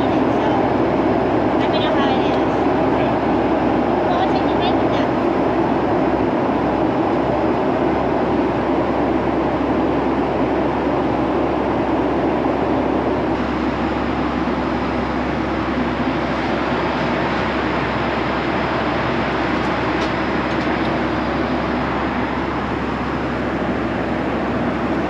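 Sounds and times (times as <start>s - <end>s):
airliner cabin roar: 0.0s - 25.0s.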